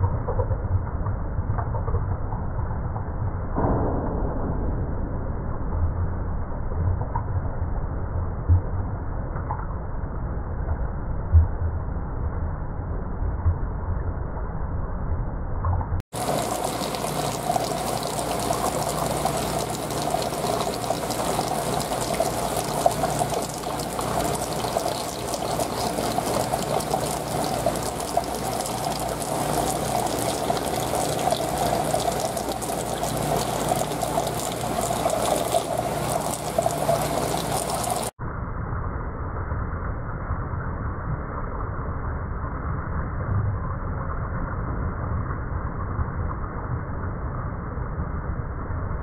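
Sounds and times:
low pump hum: 0:15.2 - 0:38.2
aquarium water trickling: 0:16.1 - 0:38.2.

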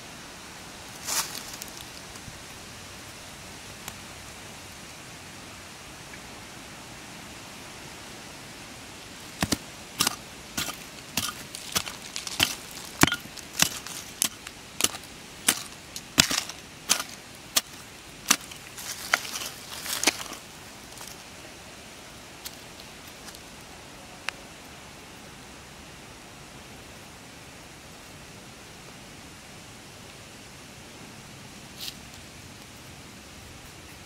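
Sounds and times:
steady hiss: 0:00.0 - 0:34.0
hand pick chopping stony soil: 0:09.3 - 0:21.1.

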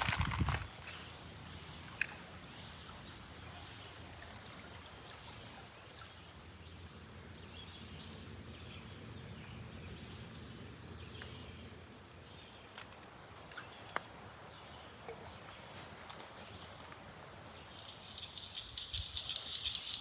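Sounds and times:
faint bird chirps: 0:17.6 - 0:20.0.

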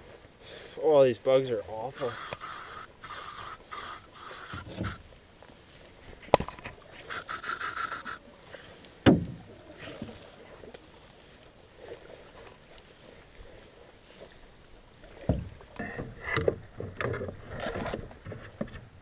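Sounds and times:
aerosol spray hissing: 0:02.0 - 0:05.0, 0:07.1 - 0:08.2.

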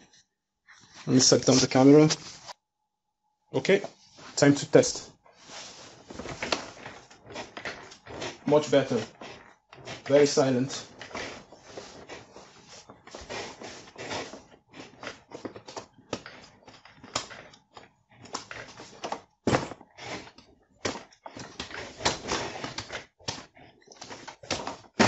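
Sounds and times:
clothing rustling: 0:05.2 - 0:15.4.

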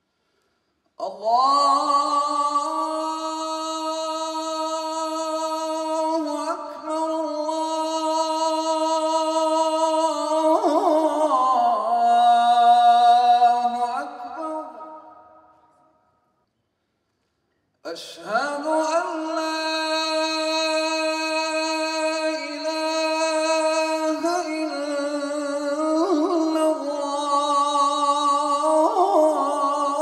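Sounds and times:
man chanting call to prayer: 0:01.0 - 0:15.3, 0:17.9 - 0:30.0.

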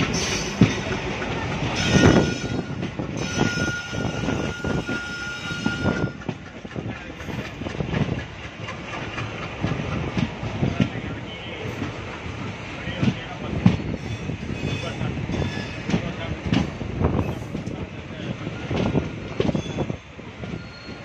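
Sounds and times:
diesel locomotive engine running: 0:00.0 - 0:21.0
wheels clanking over rail joints: 0:00.0 - 0:21.0.

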